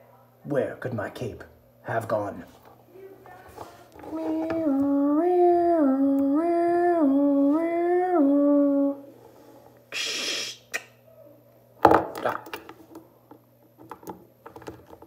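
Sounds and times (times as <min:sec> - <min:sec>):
person humming a tune: 0:04.0 - 0:09.2
brief hiss: 0:09.9 - 0:10.8.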